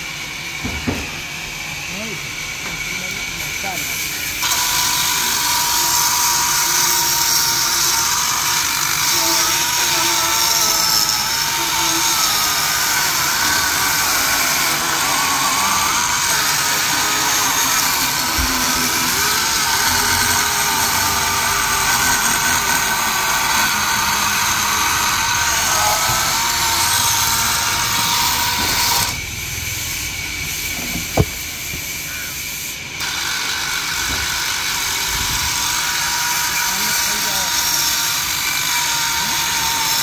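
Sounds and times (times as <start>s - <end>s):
sharp knock: 0.6s - 1.2s
electric chainsaw cutting wood: 2.8s - 32.2s, 32.8s - 40.0s.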